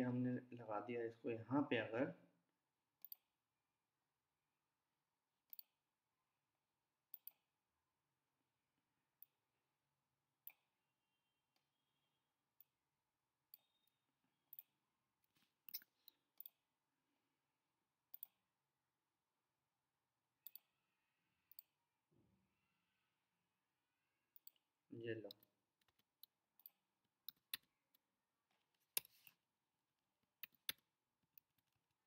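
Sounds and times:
computer mouse clicks: 3.0s - 3.3s, 5.4s - 5.8s, 7.1s - 7.5s, 10.4s - 10.7s, 13.5s - 16.6s, 18.1s - 18.4s, 20.4s - 20.8s, 21.4s - 21.8s, 24.3s - 24.7s, 25.3s - 28.0s, 28.7s - 29.4s, 30.3s - 31.8s.

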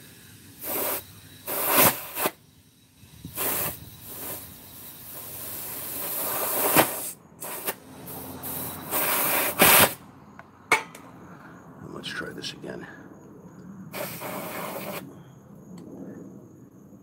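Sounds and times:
compressed air hissing: 0.0s - 10.1s, 13.9s - 15.3s.

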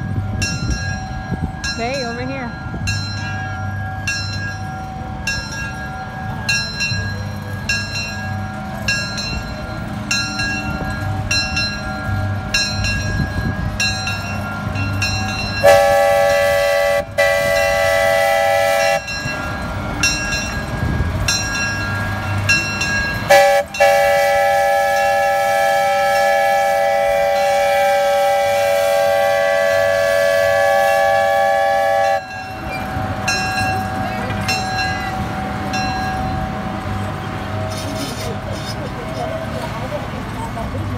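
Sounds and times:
bell clanging: 0.4s - 16.0s, 18.8s - 24.0s, 32.1s - 38.7s
train horn blasts: 15.6s - 19.2s, 23.3s - 32.4s.

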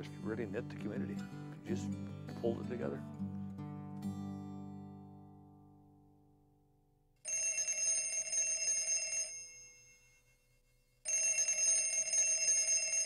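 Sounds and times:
telephone bell ringing: 7.2s - 13.0s.

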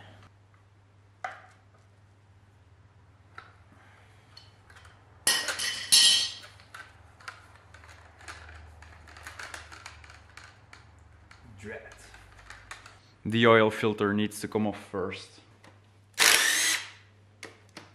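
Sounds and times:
metal tools clinking: 5.3s - 6.5s.

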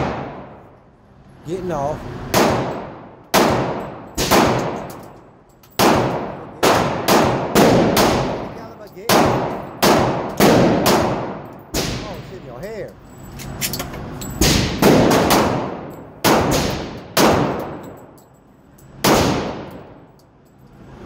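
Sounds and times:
handgun shots echoing indoors: 2.3s - 5.1s, 5.7s - 12.3s, 14.4s - 18.2s, 19.0s - 20.0s.

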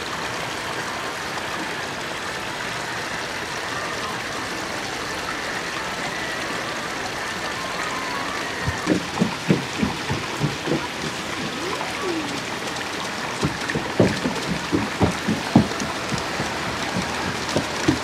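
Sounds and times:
water splashing and trickling: 0.0s - 18.0s
small plops and gurgles: 7.3s - 18.0s.

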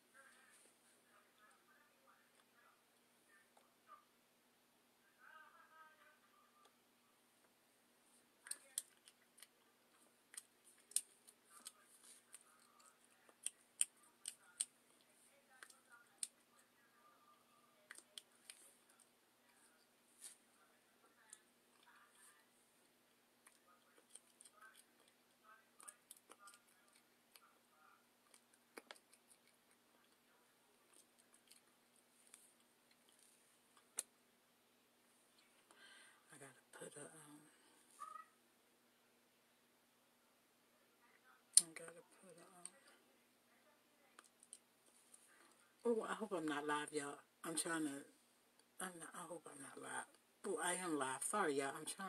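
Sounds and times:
soft rustling: 18.1s - 20.7s.

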